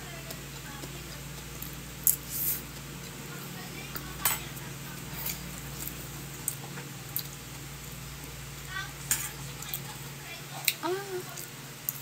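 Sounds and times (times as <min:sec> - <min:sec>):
low steady hum: 0:00.0 - 0:12.0
cutlery clinking on a plate: 0:09.1 - 0:09.4.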